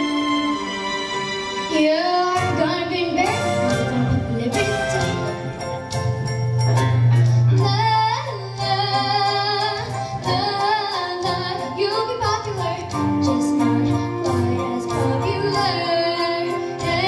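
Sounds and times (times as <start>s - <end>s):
girl singing: 1.7s - 5.4s, 7.5s - 17.0s
music with bass and beat: 3.7s - 9.6s.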